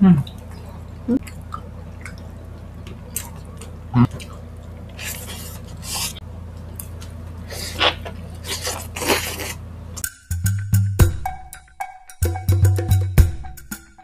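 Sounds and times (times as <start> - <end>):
wet chewing and smacking: 0.2 - 9.6.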